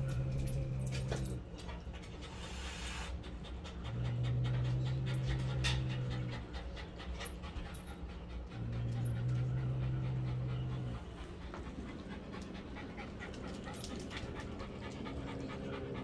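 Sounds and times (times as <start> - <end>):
low droning tone: 0.0 - 1.4
dog panting: 0.0 - 16.0.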